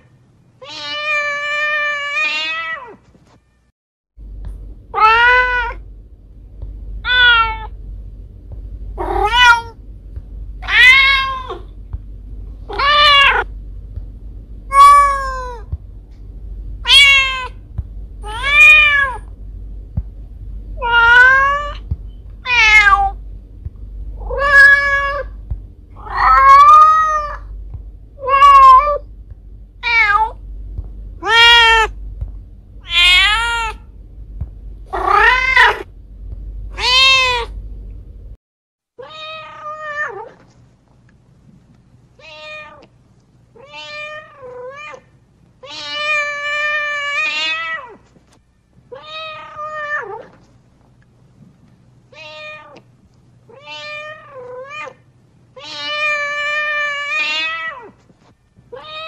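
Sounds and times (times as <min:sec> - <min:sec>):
low hum: 0:03.4 - 0:38.4
cat meowing: 0:05.0 - 0:05.8, 0:07.0 - 0:07.7, 0:09.0 - 0:09.7, 0:10.6 - 0:11.7, 0:14.7 - 0:15.7, 0:16.8 - 0:17.6, 0:22.4 - 0:23.2, 0:24.2 - 0:25.3, 0:26.0 - 0:27.5, 0:29.8 - 0:30.4, 0:31.2 - 0:31.9, 0:32.8 - 0:33.8, 0:34.9 - 0:35.8, 0:36.8 - 0:37.5.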